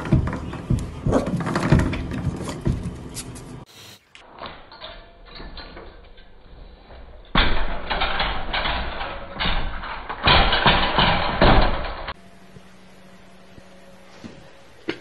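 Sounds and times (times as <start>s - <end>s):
metal baby gate rattling: 7.2s - 12.2s.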